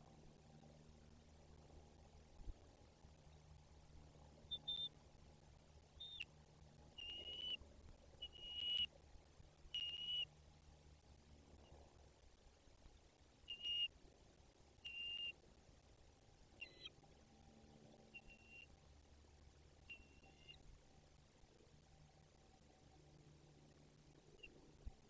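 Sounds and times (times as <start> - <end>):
eagle nestlings peeping: 7.0 - 7.6, 8.2 - 8.9, 9.8 - 10.2, 13.5 - 13.9, 14.9 - 15.3, 16.6 - 17.0.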